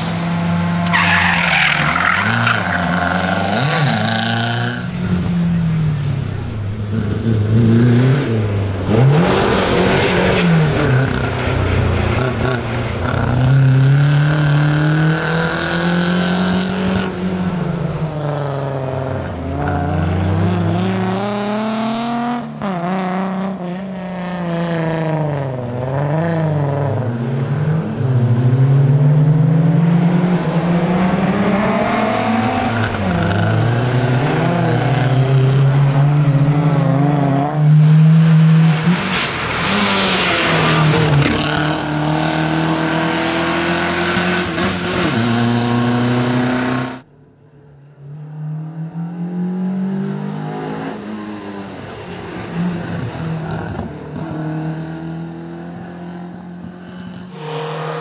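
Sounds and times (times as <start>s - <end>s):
rally car engine revving: 0.0s - 47.1s, 48.1s - 58.0s.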